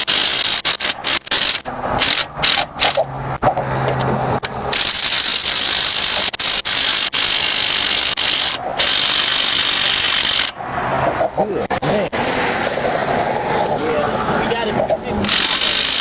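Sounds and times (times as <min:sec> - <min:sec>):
power tool whirring: 0:00.0 - 0:03.0, 0:04.7 - 0:10.6, 0:15.2 - 0:16.0.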